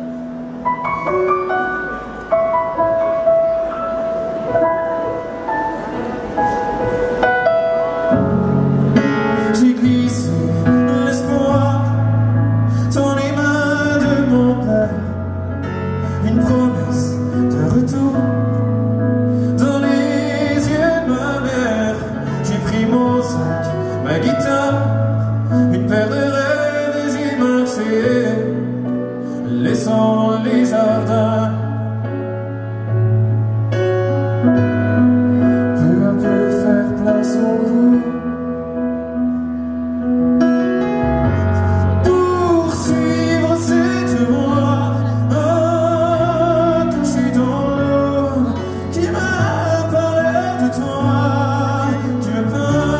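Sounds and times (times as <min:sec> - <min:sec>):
piano: 0:00.0 - 0:52.9
low bass notes: 0:28.2 - 0:52.9.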